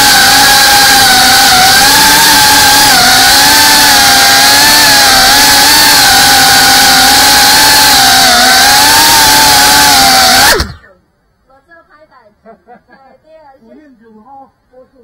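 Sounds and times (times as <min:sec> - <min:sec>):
drone motors and propellers whining: 0:00.0 - 0:10.9.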